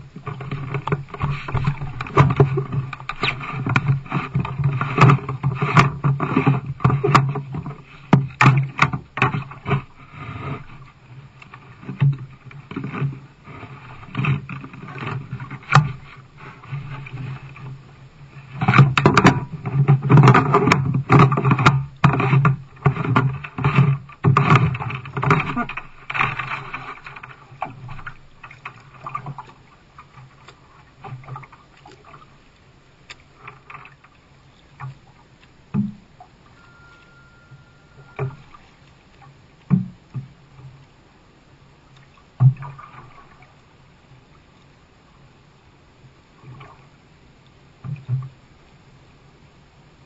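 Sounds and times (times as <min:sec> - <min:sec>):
paddle knocking on hull: 0:00.0 - 0:10.9, 0:11.8 - 0:17.7, 0:18.5 - 0:32.3, 0:35.7 - 0:38.7, 0:39.6 - 0:40.8
paddle strokes in water: 0:00.0 - 0:50.0
plastic hatch cover scraping rattle: 0:18.6 - 0:28.2.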